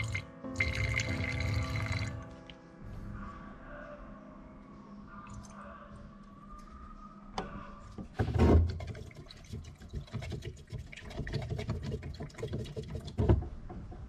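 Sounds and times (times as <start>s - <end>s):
stick stirring paint in tin: 8.2s - 13.4s.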